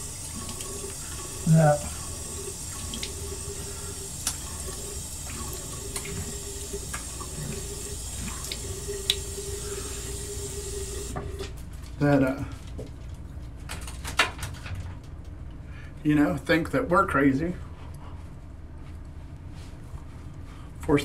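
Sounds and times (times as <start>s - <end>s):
water running from sink tap: 0.0s - 11.5s
small splashes and clicks: 5.3s - 6.3s.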